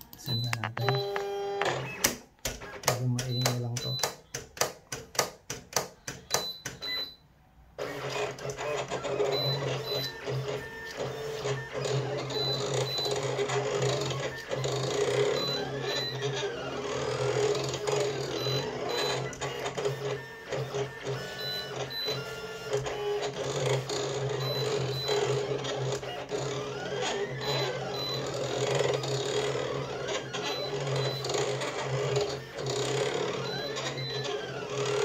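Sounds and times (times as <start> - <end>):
vinyl cutter clicking: 7.8 - 35.0.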